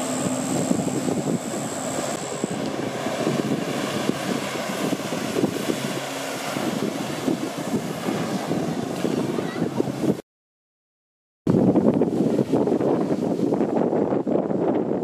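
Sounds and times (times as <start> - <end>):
pump engine running: 0.0 - 8.8.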